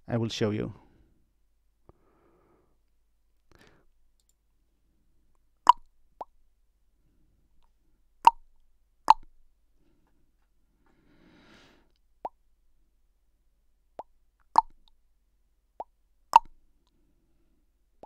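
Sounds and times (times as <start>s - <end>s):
faint breaths: 0.8s - 2.9s, 3.5s - 4.0s, 9.8s - 12.0s
mouth pops and clicks: 5.6s - 6.3s, 8.2s - 8.5s, 9.1s - 9.3s, 14.0s - 15.0s, 15.8s - 16.6s.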